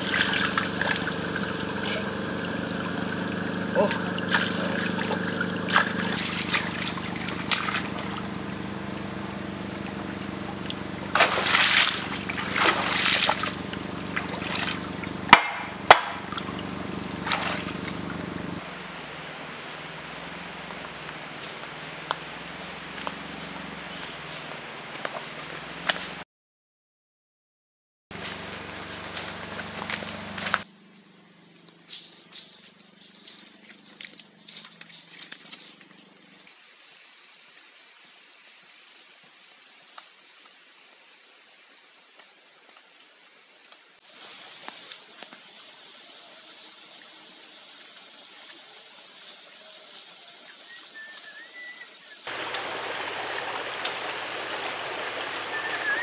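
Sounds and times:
footsteps crunching dry leaves: 0.0 - 15.2, 28.1 - 36.5
bamboo branches rustling: 0.0 - 18.6, 28.1 - 37.8, 52.3 - 56.0
steady low hum: 0.0 - 23.9
faint outdoor hiss: 0.0 - 26.2, 28.2 - 56.0
water splashing and sloshing: 0.0 - 26.2, 52.2 - 56.0
sharp knocks: 15.3 - 16.4.

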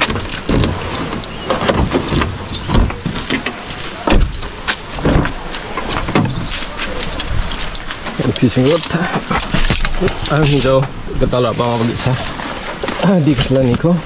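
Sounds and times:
car door opening clicks: 0.0 - 6.6
keys jangling in lock: 2.1 - 3.0.

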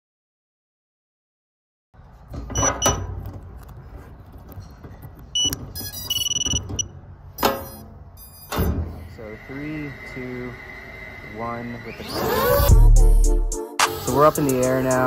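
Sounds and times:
high electronic beeps: 5.4 - 6.9, 7.6 - 8.5.

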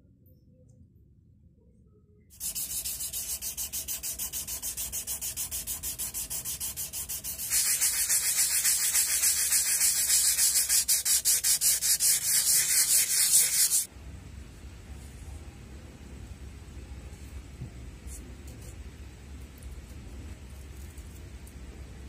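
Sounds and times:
sandpaper rubbing on steel: 2.4 - 13.9.

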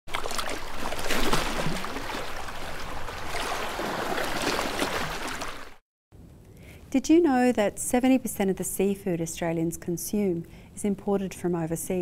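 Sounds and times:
sea waves washing: 0.1 - 5.8.

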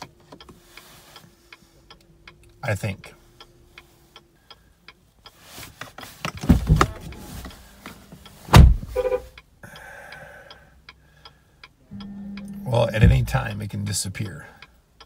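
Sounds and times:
heavy thumps: 6.3 - 7.5, 8.5 - 9.0, 12.8 - 13.6.

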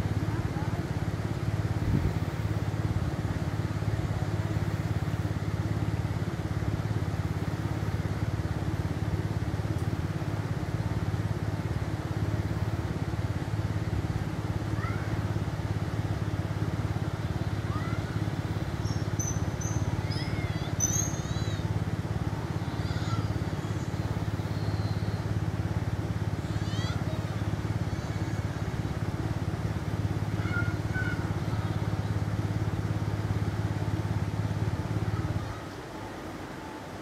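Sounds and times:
engine idling: 0.0 - 37.0
birds chirping: 18.6 - 21.9, 22.6 - 25.4.

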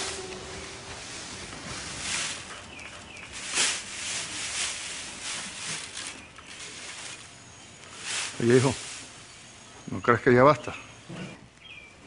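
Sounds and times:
pitchfork rustling dry hay: 0.0 - 9.4.

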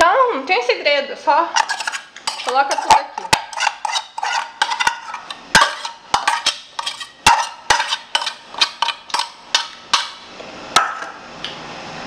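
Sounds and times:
utensil scraping a saucepan: 1.5 - 10.2.

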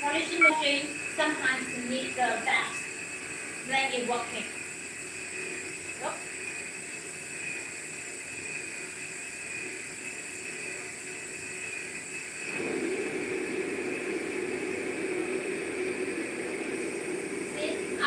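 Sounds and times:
low hum: 12.4 - 18.0.

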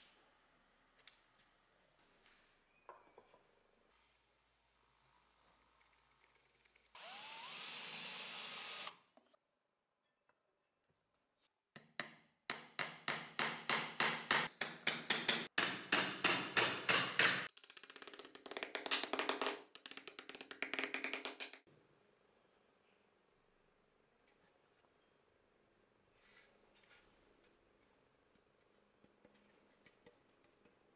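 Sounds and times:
power drill spinning up: 7.0 - 9.0
hammer striking nails: 11.8 - 17.5.

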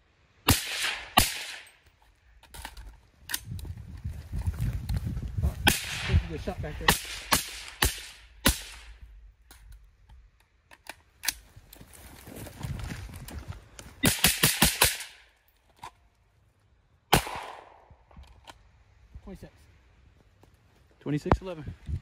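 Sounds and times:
suppressed rifle shots: 0.5 - 1.7, 17.1 - 17.8.

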